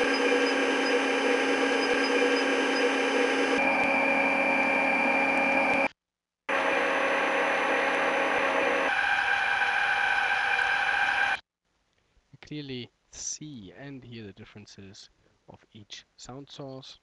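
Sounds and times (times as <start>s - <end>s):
gearbox mechanical hum: 0.0s - 5.9s
high steady whine: 0.0s - 5.9s.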